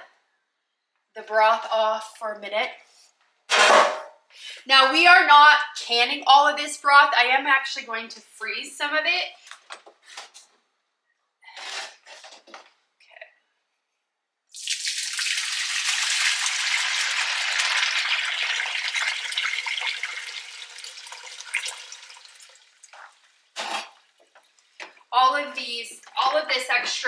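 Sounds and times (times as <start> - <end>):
broth pouring through strainer: 14.5 - 23.0.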